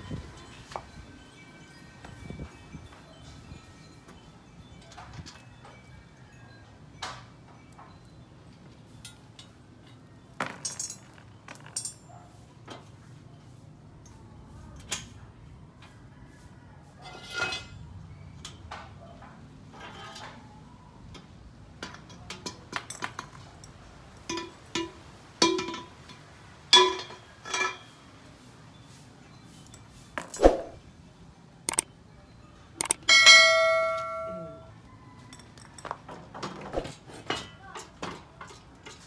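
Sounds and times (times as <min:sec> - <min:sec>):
steel pieces clinking and knocking: 0:06.9 - 0:12.2, 0:21.8 - 0:28.0, 0:29.4 - 0:30.8, 0:31.7 - 0:31.9, 0:32.8 - 0:36.0
metal set down on concrete: 0:10.3 - 0:12.0, 0:29.6 - 0:30.8.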